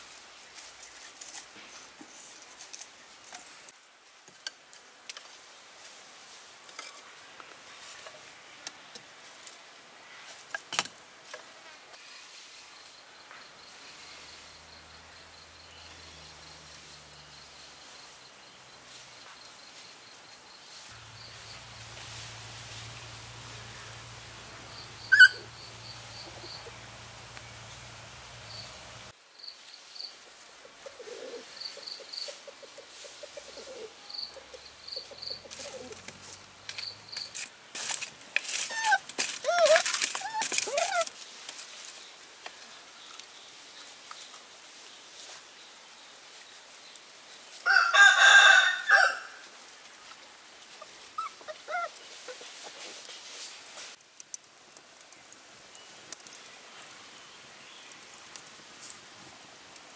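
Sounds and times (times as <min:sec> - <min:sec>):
small clicks and snaps: 0:53.9 - 0:59.9.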